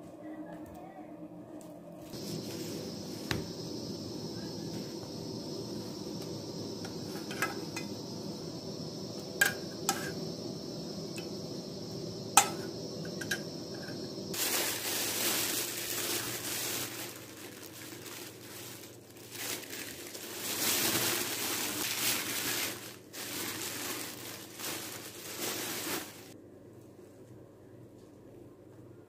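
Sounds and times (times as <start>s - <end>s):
plastic bag crinkling: 14.3s - 26.4s.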